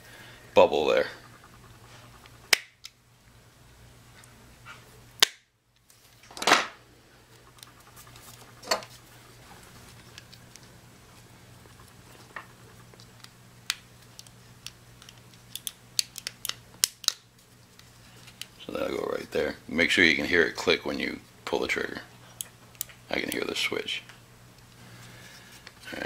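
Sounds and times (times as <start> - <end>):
plastic parts clicking: 13.0 - 17.2.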